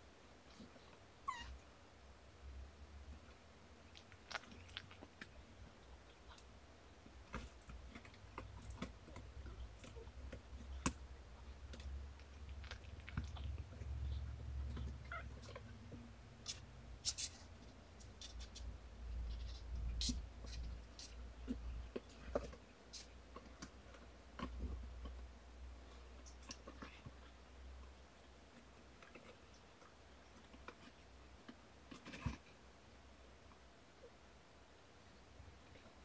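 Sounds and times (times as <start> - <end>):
kittens crawling on blanket: 7.1 - 25.3.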